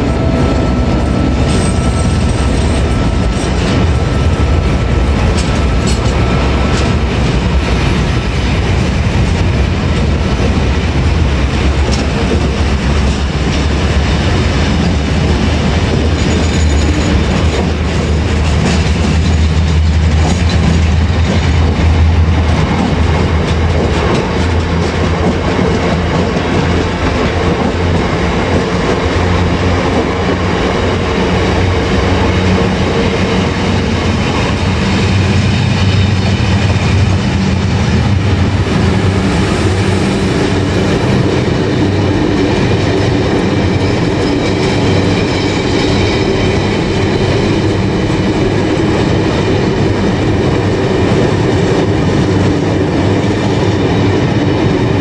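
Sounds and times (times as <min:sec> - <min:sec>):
diesel engine drone: 0:00.0 - 0:16.1
train wagons rumbling on rails: 0:00.0 - 0:55.0.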